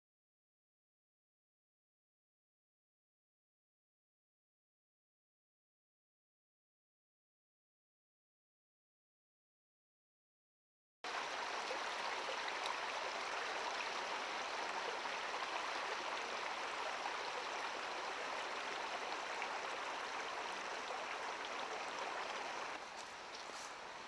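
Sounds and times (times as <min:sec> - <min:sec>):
stream running over stones: 0:11.1 - 0:24.0.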